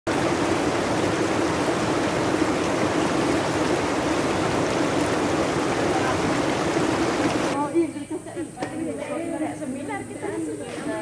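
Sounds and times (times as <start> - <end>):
river rapids rushing over boulders: 0.1 - 7.6.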